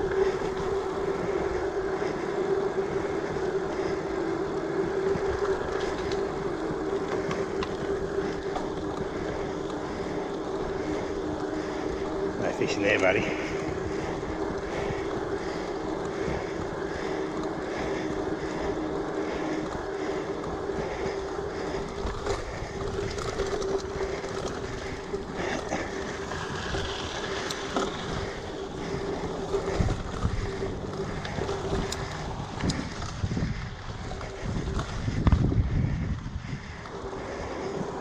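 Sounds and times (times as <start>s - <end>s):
bike tyre noise: 0.0s - 38.0s
steady hum: 0.0s - 38.0s
wind on microphone: 21.6s - 38.0s.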